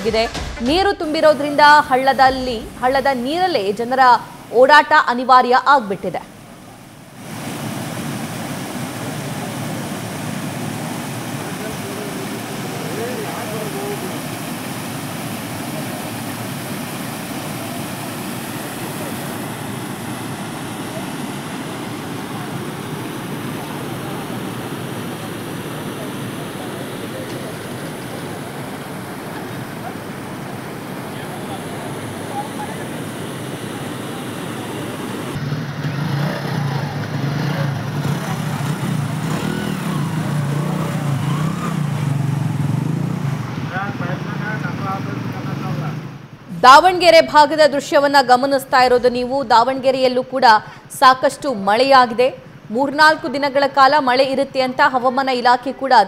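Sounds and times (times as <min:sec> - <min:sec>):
floodwater rushing over road: 0:00.0 - 0:46.5
motorcycle engine wading through water: 0:06.6 - 0:45.5.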